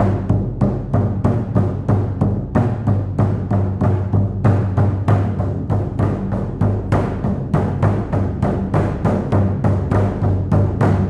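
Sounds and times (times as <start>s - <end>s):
deep drum beaten steadily: 0.0s - 11.0s.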